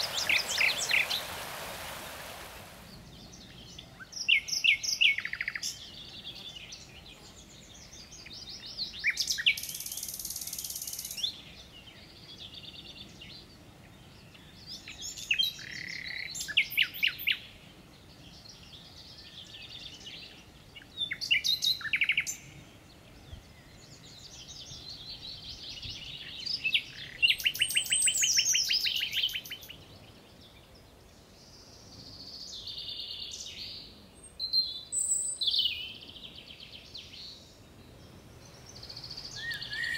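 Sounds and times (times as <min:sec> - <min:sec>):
songbirds singing trills: 0:00.0 - 0:01.3, 0:02.8 - 0:39.9.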